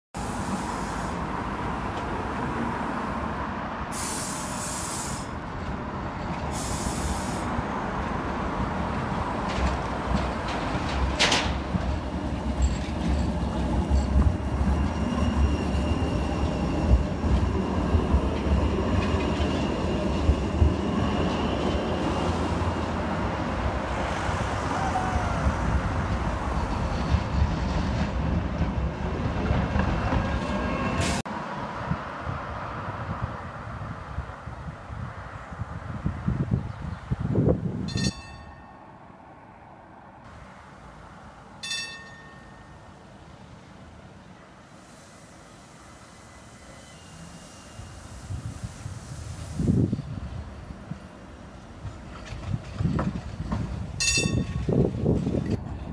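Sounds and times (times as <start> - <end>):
tram wheels rumbling on rails: 0.2 - 38.7, 40.9 - 55.9
high wheel squeal: 12.6 - 17.9, 46.0 - 48.4.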